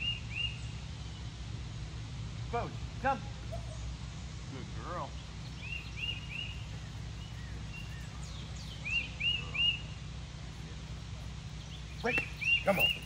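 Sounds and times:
bird singing: 0.0s - 1.3s, 4.9s - 13.0s
low outdoor rumble: 0.0s - 13.0s.

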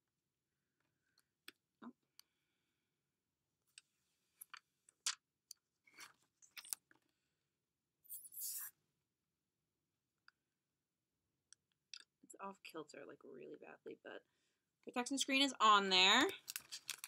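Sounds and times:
small plastic clicks and crinkles: 3.7s - 7.1s, 16.2s - 17.0s
plastic rustle: 16.4s - 17.0s.

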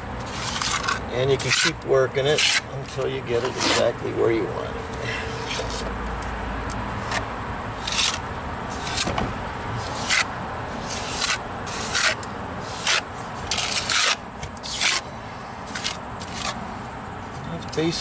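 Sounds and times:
trowel scraping wet cement: 0.3s - 3.9s, 9.8s - 15.0s.

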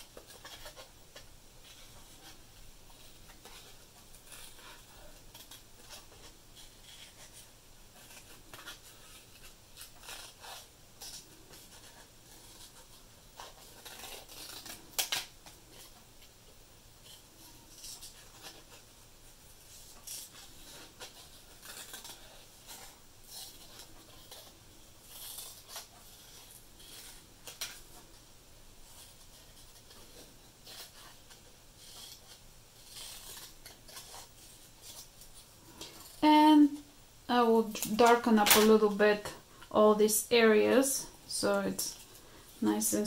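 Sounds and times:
scissors snipping paper: 3.0s - 16.0s, 19.8s - 27.9s, 28.9s - 36.3s.

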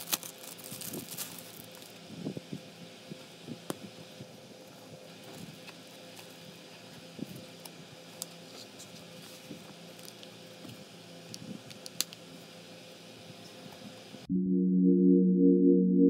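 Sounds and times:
low steady hum: 14.2s - 16.0s.

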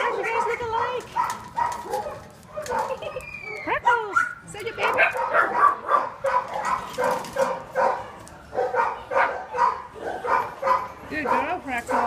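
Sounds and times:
dog barking: 0.0s - 3.0s, 5.0s - 12.0s.

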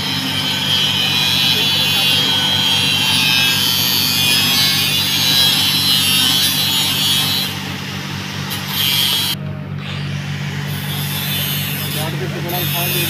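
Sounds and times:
low engine hum: 5.9s - 12.7s.

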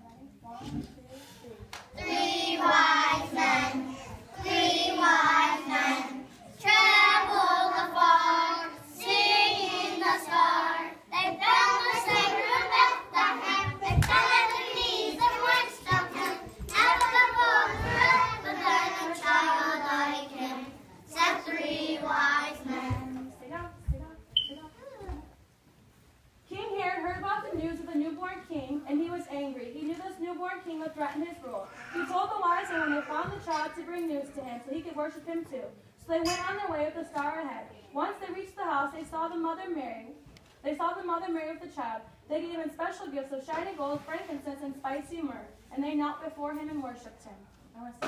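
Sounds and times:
children singing: 2.0s - 23.2s.

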